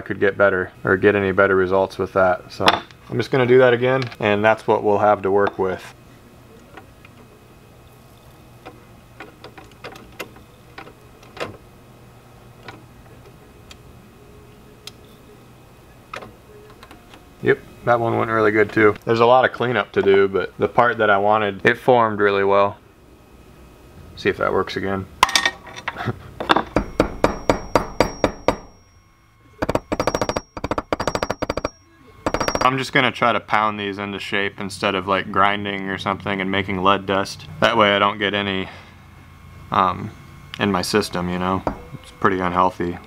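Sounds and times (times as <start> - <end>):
steady low hum: 0.0 - 43.0
hammer striking metal: 26.5 - 29.0, 29.6 - 32.7.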